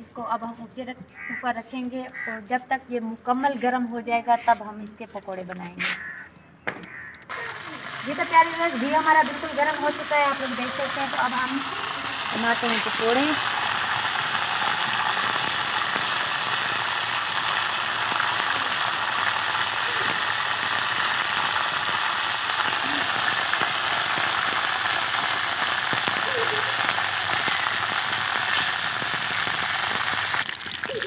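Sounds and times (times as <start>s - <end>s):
batter frying in hot oil: 6.9s - 31.0s.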